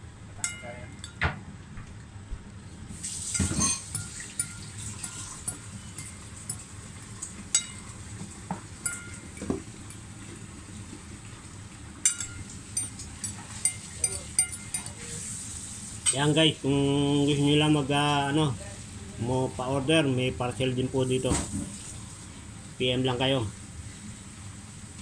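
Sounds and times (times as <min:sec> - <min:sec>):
steady background noise: 0:00.0 - 0:25.0
cutlery clinking against a bowl: 0:00.4 - 0:01.3, 0:03.2 - 0:10.0, 0:12.0 - 0:15.2, 0:16.0 - 0:16.4.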